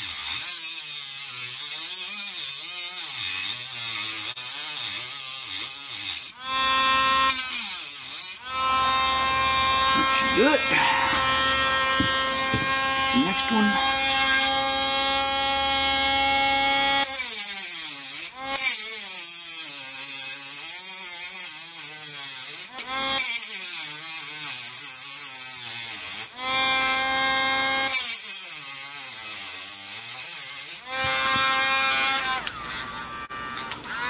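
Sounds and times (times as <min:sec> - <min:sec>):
cutting wheel grinding metal: 0:00.0 - 0:27.0, 0:27.8 - 0:34.0
rotary tool whining: 0:05.8 - 0:17.4, 0:30.1 - 0:34.0.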